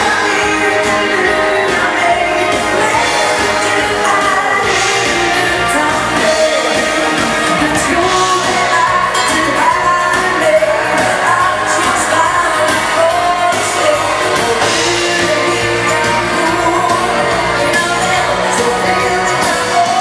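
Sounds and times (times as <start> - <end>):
lead vocalist singing: 0.0 - 20.0
live dance band playing: 0.0 - 20.0.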